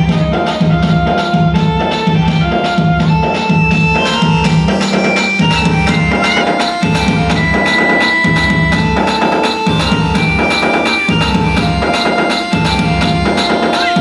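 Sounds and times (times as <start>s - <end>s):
fast percussion strokes: 0.0s - 14.0s
held melody notes: 0.0s - 14.0s.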